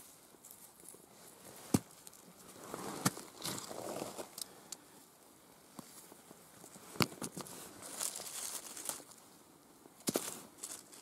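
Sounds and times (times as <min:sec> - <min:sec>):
hands rummaging through dry leaves: 0:07.4 - 0:09.2, 0:10.1 - 0:11.0.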